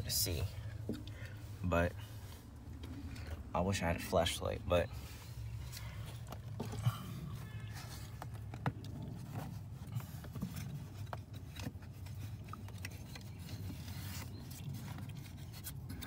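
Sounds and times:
rustling and scraping: 0.0 - 16.0.

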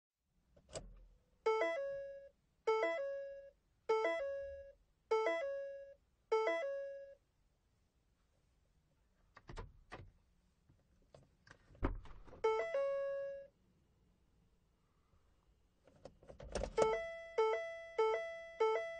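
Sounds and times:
heavy thunk: 11.8 - 12.4
car door warning chime: 12.4 - 13.5, 16.7 - 18.9.

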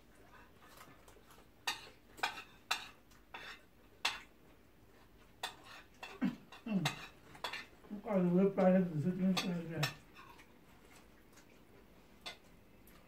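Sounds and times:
cutlery clinking on plates: 1.6 - 4.3, 5.4 - 7.8, 9.2 - 10.5, 12.2 - 12.5.

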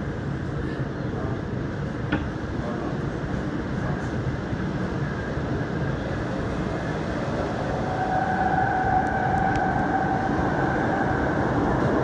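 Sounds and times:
train rumbling: 0.0 - 12.0
steady whine: 4.5 - 12.0.

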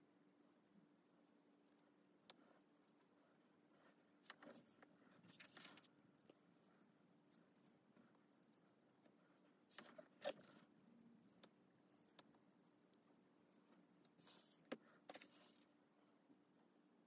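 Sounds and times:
paper pages rustling: 4.2 - 5.9.

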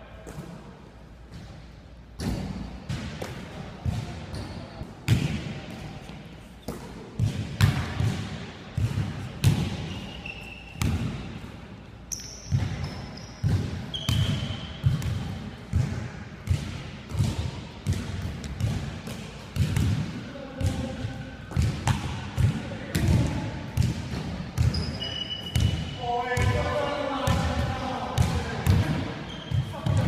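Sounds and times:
sneaker squeaks: 9.4 - 11.4, 12.1 - 15.1, 24.6 - 26.6, 28.8 - 30.0
basketballs bouncing on hardwood floor: 12.4 - 20.9, 21.5 - 24.9.

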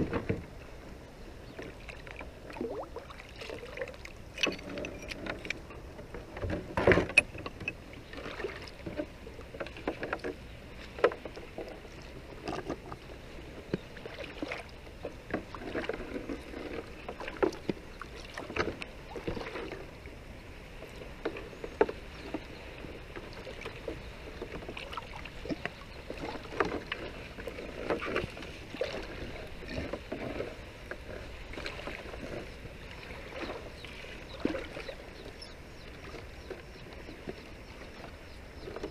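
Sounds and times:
water splashing and dripping: 1.8 - 5.6.

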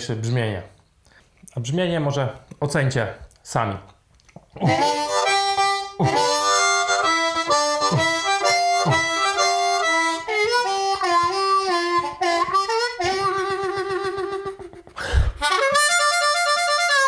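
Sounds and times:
harmonica playing: 4.6 - 17.0.

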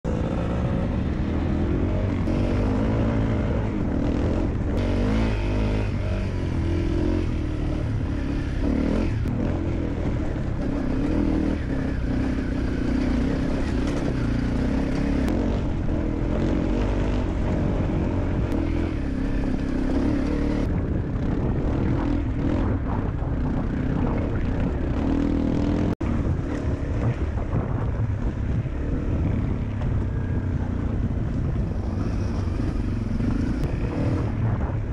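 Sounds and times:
dirt bike engine running: 0.1 - 34.9
wind noise: 0.1 - 34.9.

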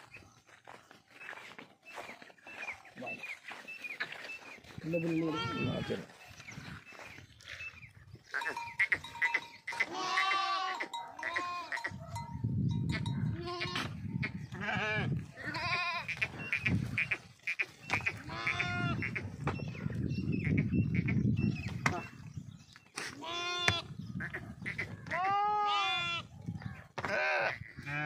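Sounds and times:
goats bleating: 5.0 - 6.2, 8.3 - 12.0, 13.3 - 19.2, 23.0 - 26.3, 27.0 - 28.0.

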